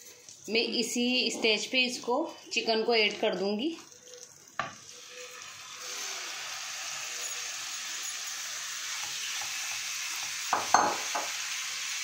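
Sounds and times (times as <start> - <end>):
chicken sizzling in a frying pan: 3.4 - 12.0.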